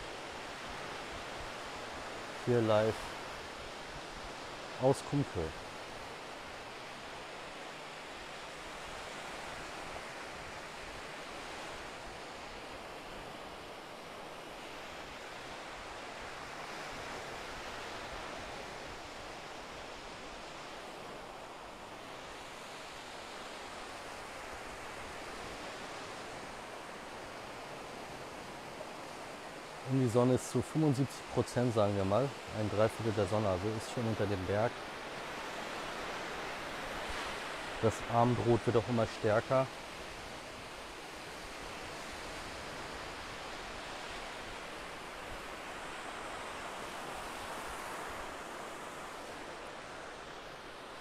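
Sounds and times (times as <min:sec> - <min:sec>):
small waves breaking on sand: 0:00.0 - 0:51.0.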